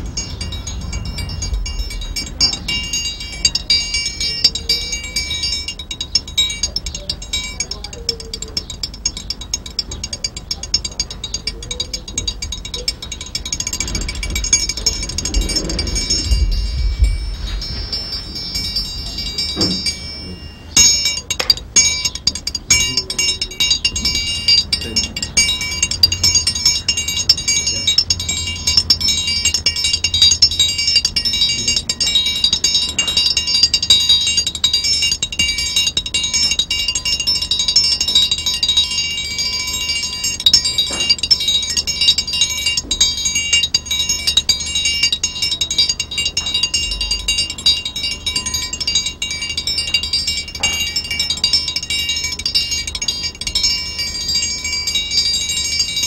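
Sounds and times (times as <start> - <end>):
ringing high instrumental tones: 0.0 - 56.0.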